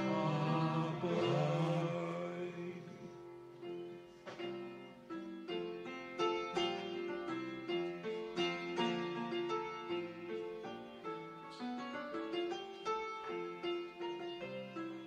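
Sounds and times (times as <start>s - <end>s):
choir singing a hymn: 0.0s - 3.4s
piano chords: 0.0s - 15.0s.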